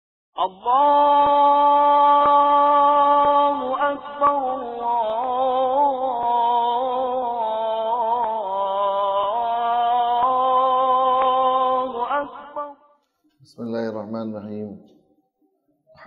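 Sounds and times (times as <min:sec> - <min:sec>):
chant-like music: 0:00.4 - 0:13.0.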